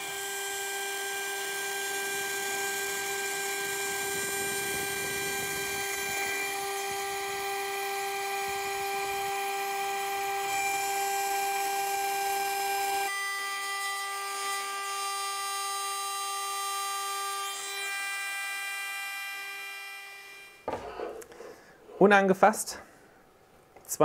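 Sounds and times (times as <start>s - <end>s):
end mill cutting wood: 0.0s - 21.2s
spindle whine: 3.0s - 9.4s.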